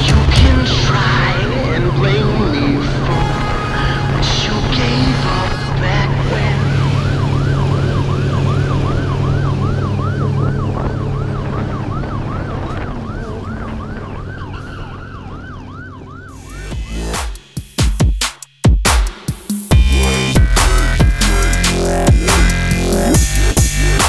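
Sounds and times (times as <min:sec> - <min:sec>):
siren yelping: 0:00.0 - 0:17.8.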